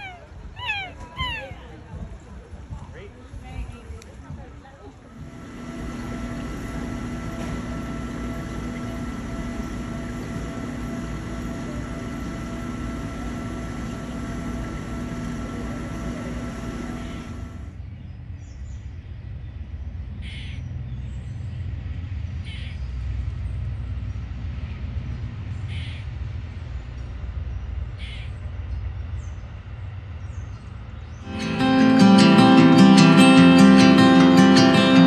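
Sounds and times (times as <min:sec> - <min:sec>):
low outdoor rumble: 0:00.0 - 0:35.0
aquarium equipment humming: 0:05.2 - 0:17.8.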